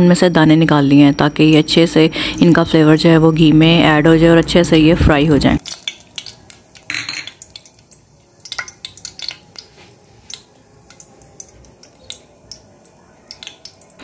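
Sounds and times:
spices crackling in hot ghee: 5.5s - 14.0s.

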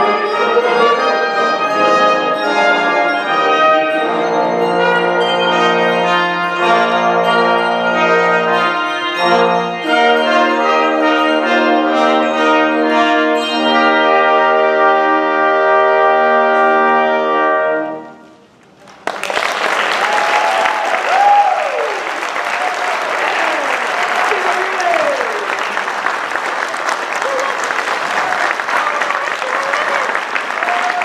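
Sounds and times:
handbells and brass chord: 0.0s - 18.2s
audience applause: 18.8s - 31.0s
audience whistling: 19.1s - 31.0s.

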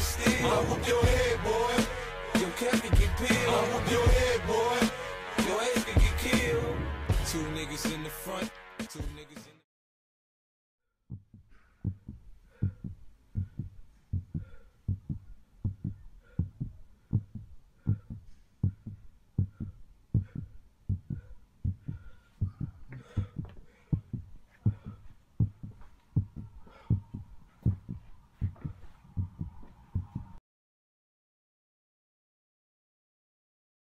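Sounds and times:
heartbeat thumps: 11.1s - 30.4s.

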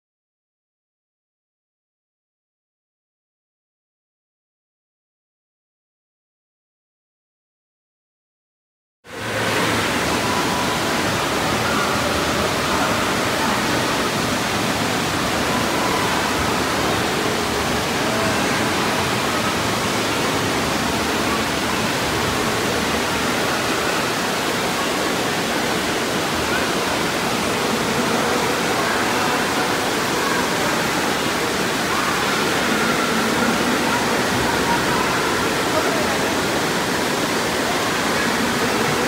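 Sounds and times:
water rushing down a drain: 9.1s - 39.0s.

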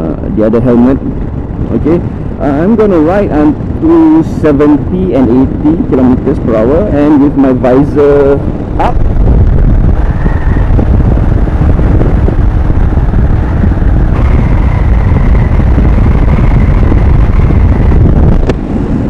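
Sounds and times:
wind rushing over helmet: 0.0s - 19.0s
motorcycle engine running: 8.3s - 19.0s.

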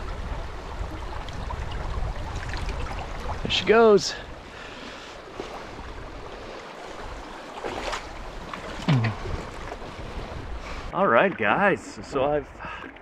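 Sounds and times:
wind noise on microphone: 0.0s - 3.6s, 8.8s - 10.9s
river water around a boat: 0.0s - 13.0s.

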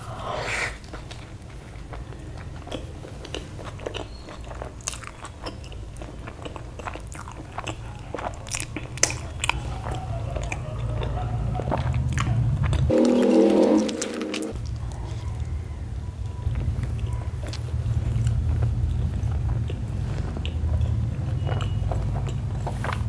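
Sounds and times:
biting and chewing food: 0.1s - 23.0s
steady low hum: 12.5s - 21.3s.

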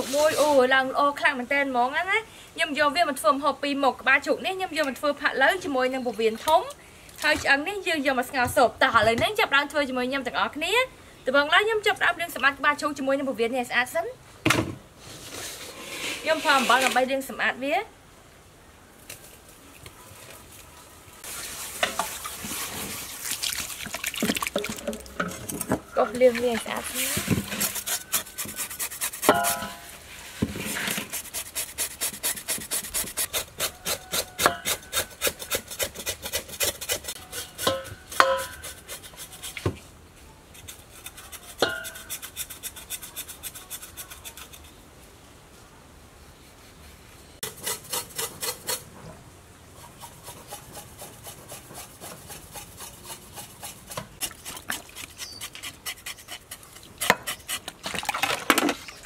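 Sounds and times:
knife scraping skin: 27.0s - 29.8s, 50.0s - 57.8s.

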